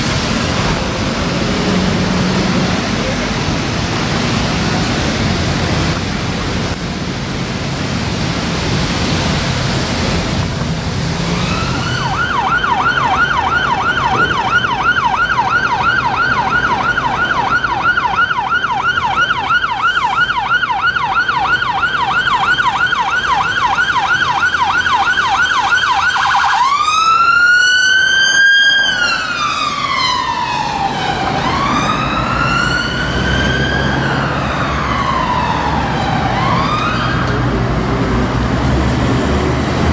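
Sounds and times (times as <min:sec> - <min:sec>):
wet traffic: 0:00.0 - 0:39.9
siren yelping and wailing: 0:11.3 - 0:37.5.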